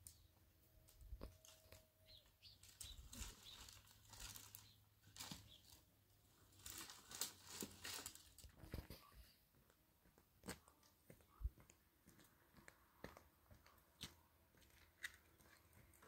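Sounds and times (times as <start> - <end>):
dry twigs rustling and crackling: 0.9 - 8.6.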